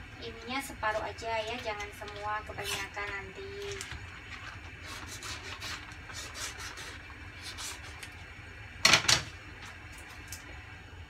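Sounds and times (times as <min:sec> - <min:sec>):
knife sawing plastic pouch: 0:04.8 - 0:08.0.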